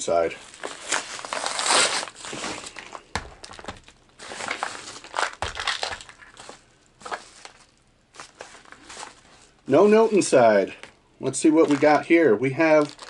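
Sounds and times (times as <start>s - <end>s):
padded mailer crinkling and tearing: 0.4s - 9.5s, 11.5s - 13.0s.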